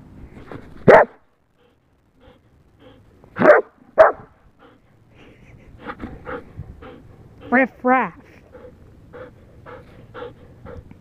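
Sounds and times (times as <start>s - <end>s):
dog barking: 0.9s - 1.2s, 3.4s - 4.3s.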